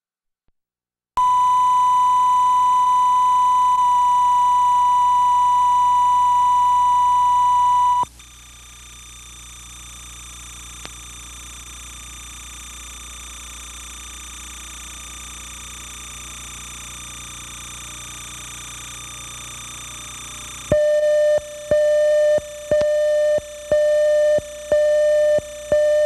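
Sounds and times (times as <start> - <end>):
loud pure reference beep: 1.2 - 8.0.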